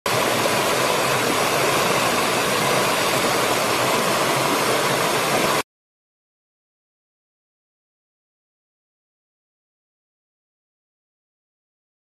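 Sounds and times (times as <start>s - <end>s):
stream rushing over stones: 0.1s - 5.6s.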